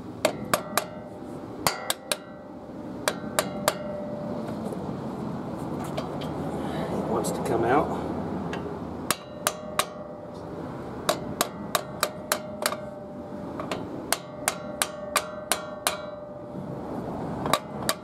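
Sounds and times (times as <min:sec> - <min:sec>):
mallet striking brake rotor: 0:00.2 - 0:04.8, 0:08.5 - 0:16.7, 0:17.4 - 0:18.0
metallic ringing tone: 0:00.4 - 0:04.5, 0:11.4 - 0:13.5.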